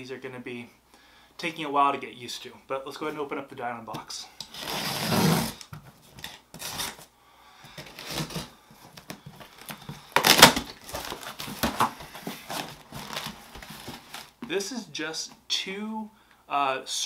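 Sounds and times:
packing tape being cut: 4.4 - 7.0, 7.8 - 8.5, 9.6 - 11.9
cardboard rustling and tearing: 6.2 - 7.1, 7.8 - 14.3.

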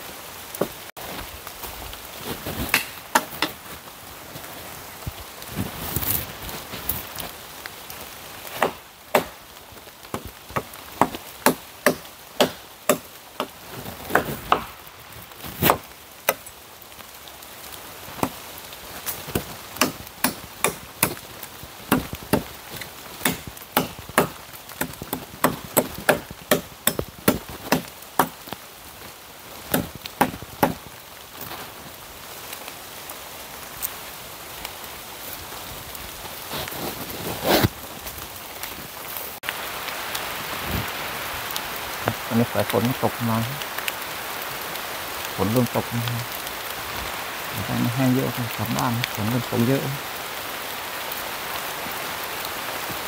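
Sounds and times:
steady rain: 0.0 - 53.0
wood being chopped: 2.6 - 3.6, 8.5 - 9.4, 10.0 - 14.8, 15.5 - 16.5, 19.1 - 21.2, 21.9 - 28.6, 29.7 - 30.9.

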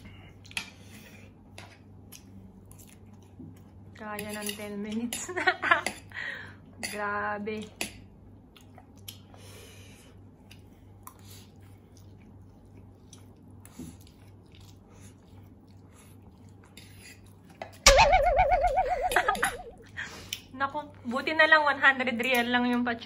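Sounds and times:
chewing noodles: 1.8 - 3.9, 10.4 - 17.8.

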